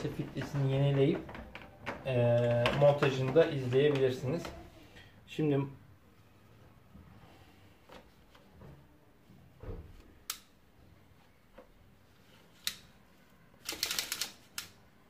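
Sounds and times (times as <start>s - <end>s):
sharp plastic clicks: 13.6s - 14.8s.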